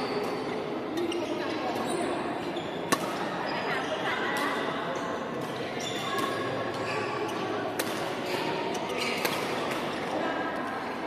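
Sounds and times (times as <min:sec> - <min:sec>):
murmur of distant voices: 0:00.0 - 0:11.0
rackets striking shuttlecock: 0:02.9 - 0:03.3, 0:07.8 - 0:08.2, 0:09.0 - 0:09.9.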